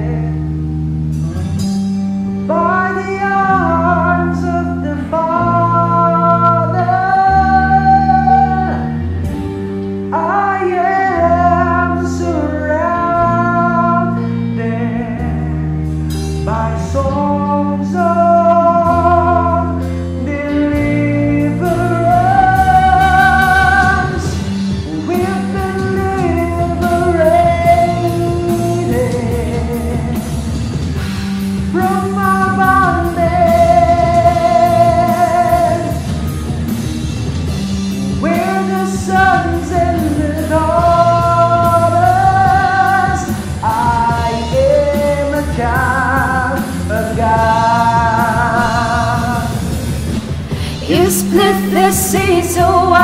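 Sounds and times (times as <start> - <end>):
bass guitar: 0.0 - 53.0
drums: 0.0 - 53.0
electric guitar: 0.0 - 53.0
man and woman singing: 2.5 - 9.0, 16.5 - 30.4, 31.7 - 36.0, 38.2 - 49.8, 50.5 - 53.0.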